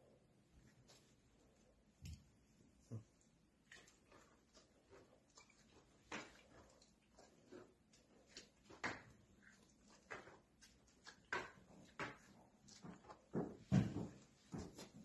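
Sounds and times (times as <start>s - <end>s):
hooves on concrete floor: 5.5s - 15.0s.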